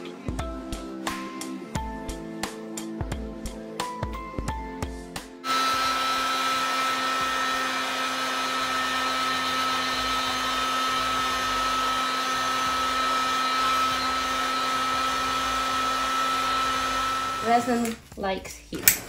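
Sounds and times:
heat gun blowing air: 0:05.5 - 0:17.9.

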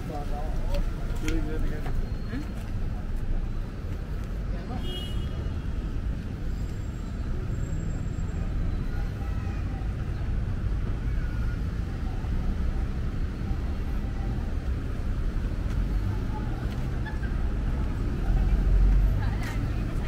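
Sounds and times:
road traffic rumble: 0:00.0 - 0:20.0
faint voices: 0:05.9 - 0:20.0.

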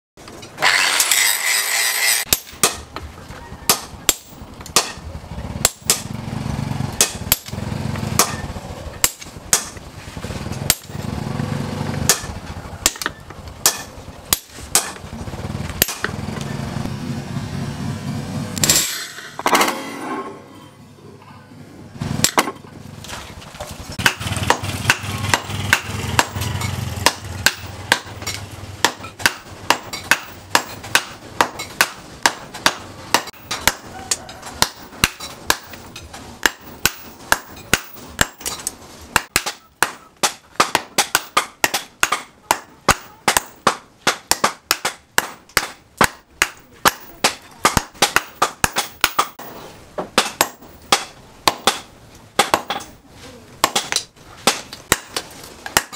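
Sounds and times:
hammer striking hot steel: 0:00.5 - 0:03.0, 0:03.7 - 0:06.1, 0:06.9 - 0:09.8, 0:10.7 - 0:11.0, 0:12.0 - 0:15.1, 0:15.8 - 0:16.2, 0:18.6 - 0:20.0, 0:22.2 - 0:22.6, 0:24.0 - 0:53.0, 0:53.6 - 0:55.9.

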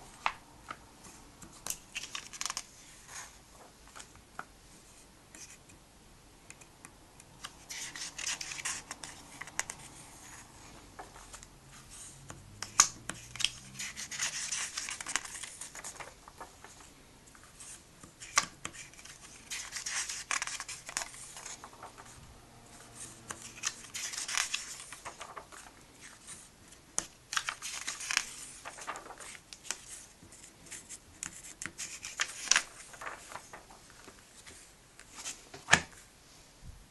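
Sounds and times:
taps and slaps flattening pages: 0:00.2 - 0:02.7, 0:07.4 - 0:09.9, 0:12.2 - 0:16.9, 0:18.0 - 0:22.2, 0:22.9 - 0:36.0
comic book pages turning: 0:01.4 - 0:04.1, 0:07.4 - 0:36.0.

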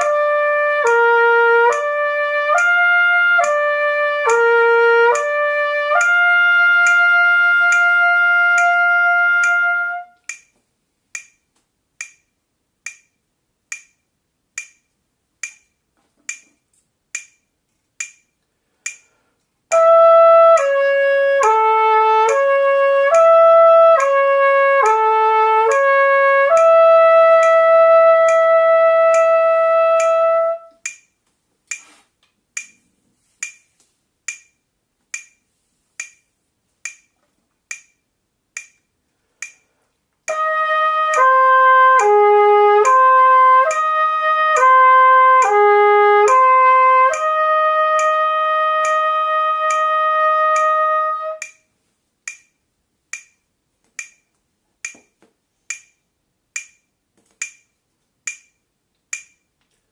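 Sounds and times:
trumpet playing slurred notes: 0:00.0 - 0:10.2, 0:19.7 - 0:30.8, 0:40.3 - 0:51.5
metronome clicking: 0:00.0 - 0:59.6.

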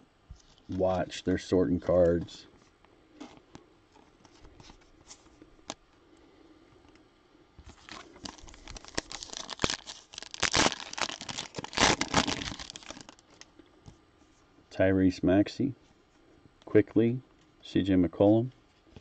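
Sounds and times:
plastic wrapper crinkling and tearing: 0:07.6 - 0:13.6.

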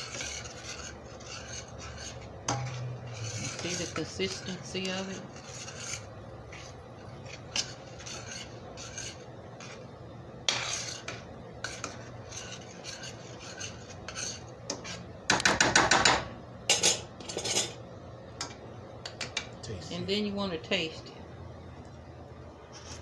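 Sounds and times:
metal spoon scraping a skillet: 0:00.0 - 0:15.1, 0:16.7 - 0:17.8.

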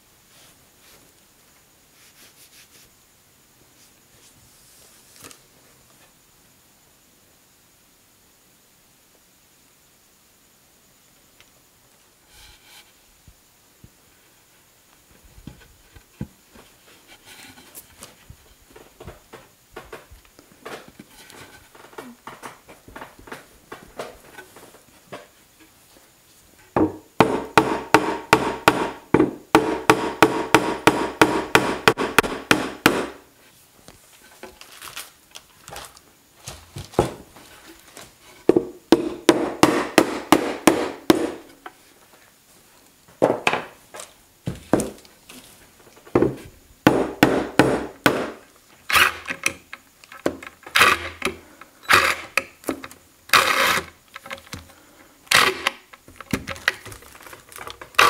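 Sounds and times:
mallet tapping plywood panel: 0:26.8 - 0:33.2, 0:38.5 - 0:41.5, 0:46.9 - 0:48.4.

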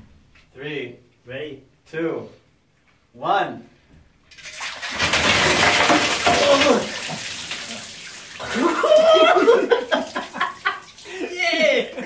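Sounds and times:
water splashing on tiled floor: 0:04.3 - 0:11.8
people laughing: 0:08.4 - 0:12.0.

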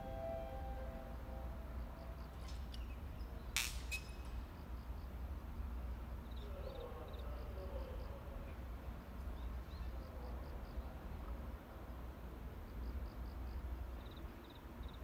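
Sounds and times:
tonal drone: 0:00.0 - 0:02.3
sharp clink: 0:03.6 - 0:04.4.

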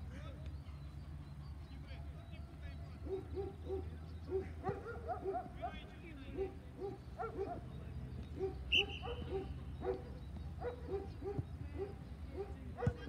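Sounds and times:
dog barking: 0:03.0 - 0:07.6, 0:08.4 - 0:13.0.

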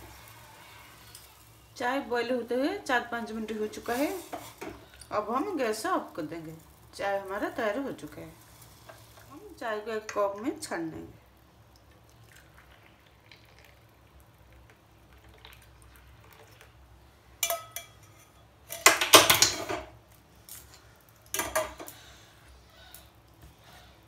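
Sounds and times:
saucepan and strainer clattering: 0:21.3 - 0:21.9.

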